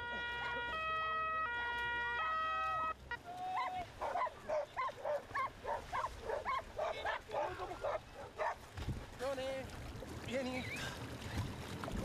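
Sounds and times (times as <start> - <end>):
two-tone siren: 0.0 - 3.0
dog barking rapidly: 4.0 - 8.6.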